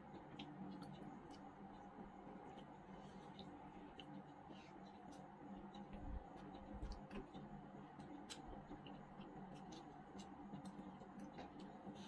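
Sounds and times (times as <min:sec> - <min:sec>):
low steady hum: 0:00.0 - 0:12.0
wet eating clicks and smacks: 0:00.1 - 0:02.7, 0:03.3 - 0:12.0
chewing: 0:00.1 - 0:07.4.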